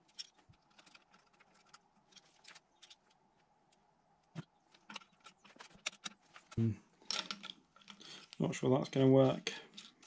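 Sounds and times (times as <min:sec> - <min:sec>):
small metal parts clicking: 0:00.0 - 0:03.2, 0:04.8 - 0:08.4, 0:09.6 - 0:10.0.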